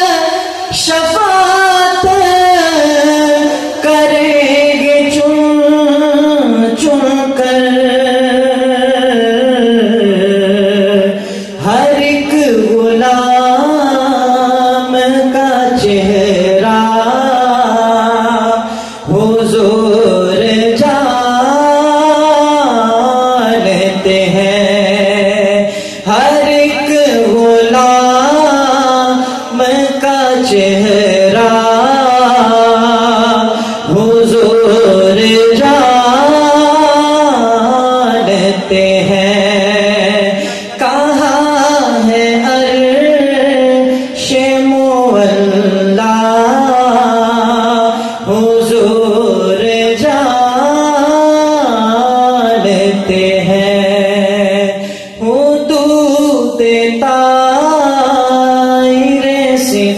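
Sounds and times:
man singing devotional song: 0:00.0 - 0:59.9
man breathing: 0:11.2 - 0:11.6, 0:18.6 - 0:19.1, 0:25.6 - 0:26.1, 0:33.5 - 0:33.9, 0:40.4 - 0:40.8, 0:54.8 - 0:55.2.

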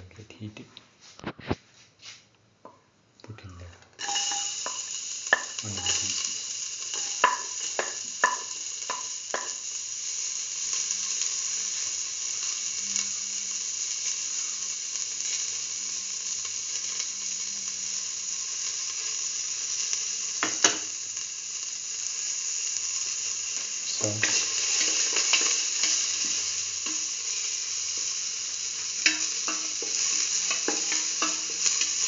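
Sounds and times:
onion sizzling in oil: 0:04.0 - 0:32.0.

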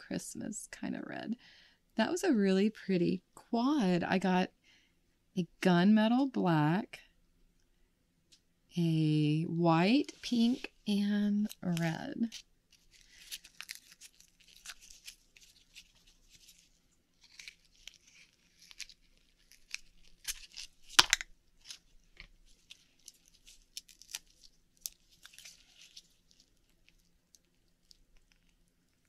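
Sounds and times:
crunching and squishing of oyster: 0:12.3 - 0:29.0.

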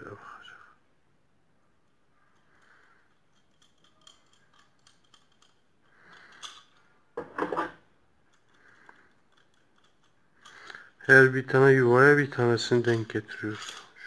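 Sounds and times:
metal parts clicking and scraping: 0:01.9 - 0:14.0
metal on metal clatter: 0:13.0 - 0:14.0.

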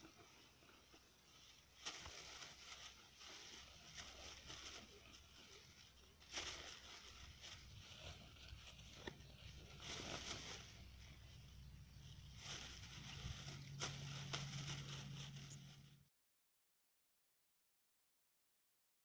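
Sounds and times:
plastic bag rustling: 0:01.3 - 0:16.0.

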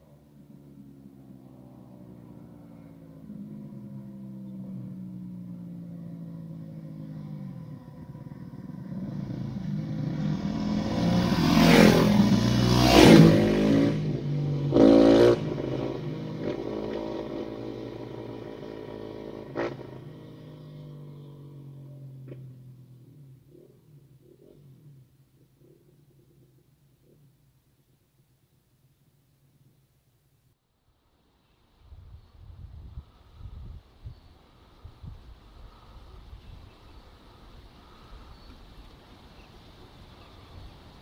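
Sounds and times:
engine rushing past: 0:00.4 - 0:25.1.

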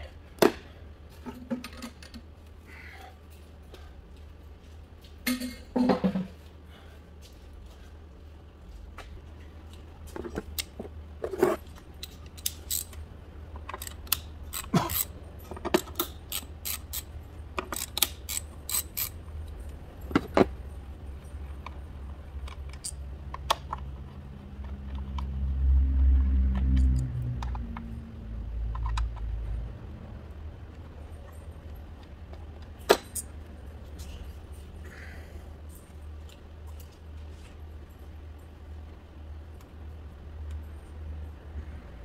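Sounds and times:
low steady rumble: 0:06.6 - 0:42.0
ratchet wrench clicking: 0:12.0 - 0:13.0, 0:13.7 - 0:15.1, 0:15.8 - 0:19.2.

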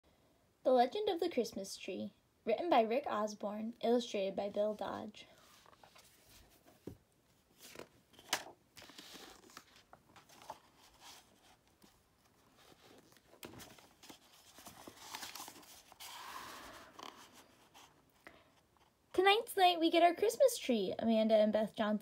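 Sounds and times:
pages being turned: 0:05.4 - 0:18.0
paper rustles and taps: 0:07.6 - 0:11.2, 0:12.8 - 0:15.8
book cover opening: 0:07.6 - 0:17.8.

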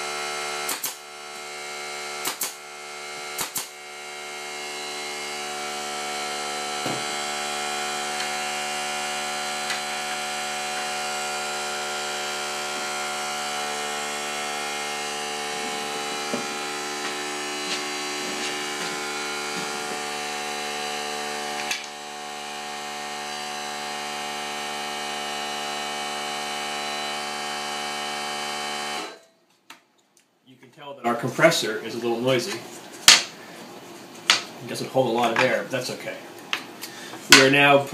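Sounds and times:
air compressor running: 0:00.0 - 0:29.2.

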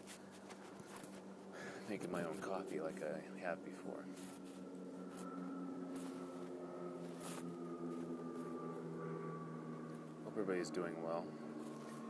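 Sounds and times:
high-pitched whine: 0:00.0 - 0:12.0
low machine hum: 0:00.0 - 0:12.0.

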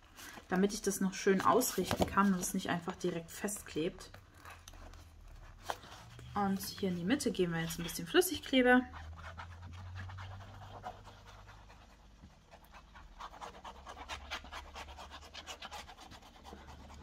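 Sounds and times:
paper crackling and scratching: 0:00.1 - 0:17.0.

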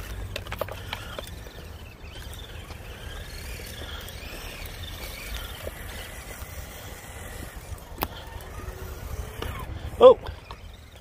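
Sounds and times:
motor and gear whine: 0:00.0 - 0:11.0.

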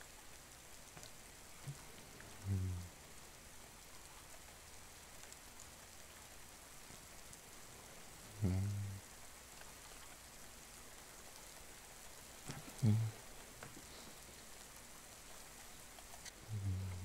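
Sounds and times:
rain falling: 0:00.0 - 0:17.0
man humming: 0:02.4 - 0:02.9, 0:08.4 - 0:09.0, 0:12.5 - 0:13.2, 0:16.5 - 0:17.0.

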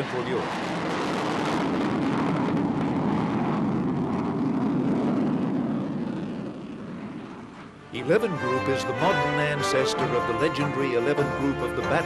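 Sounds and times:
jet flying past: 0:00.0 - 0:09.4.

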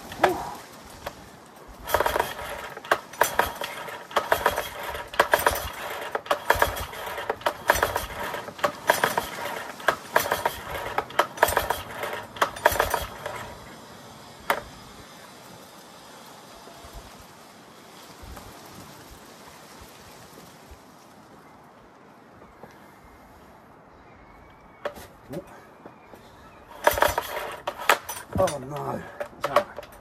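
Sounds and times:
outboard engine pull-start cranking: 0:01.8 - 0:13.8, 0:14.5 - 0:14.7, 0:26.7 - 0:30.0.

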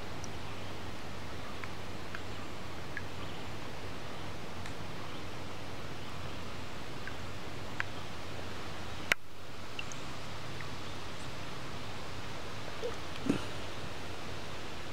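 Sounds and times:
outdoor background hiss: 0:00.0 - 0:14.9.

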